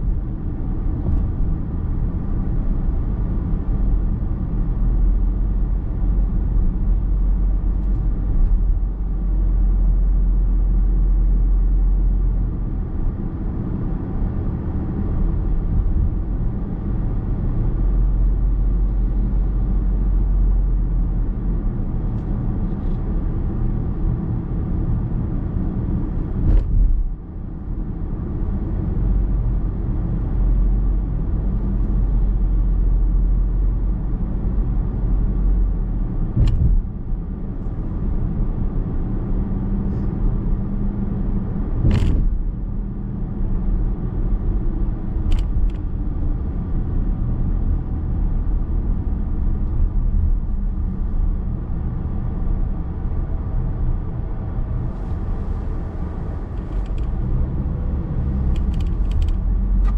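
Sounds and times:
car interior road rumble: 0.0s - 59.9s.

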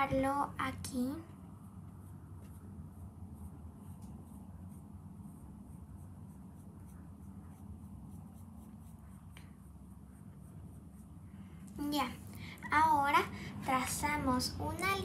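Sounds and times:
steady low hum: 0.0s - 15.0s
pencil scratching on paper: 1.2s - 11.6s.

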